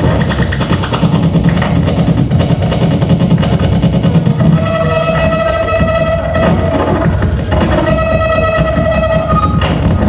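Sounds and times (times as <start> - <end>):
distorted harsh noise: 0.0 - 10.0
heavy low rumble: 0.0 - 10.0
steady high drone: 2.4 - 10.0.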